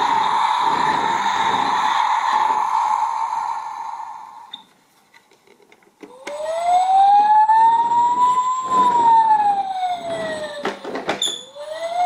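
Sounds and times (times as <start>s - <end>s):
toy electronic siren wailing: 6.1s - 12.0s.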